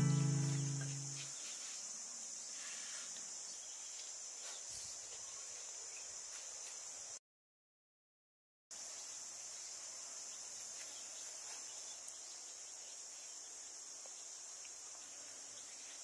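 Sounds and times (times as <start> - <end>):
guitar music: 0.0 - 1.2
insects droning: 0.0 - 7.2, 8.8 - 16.0.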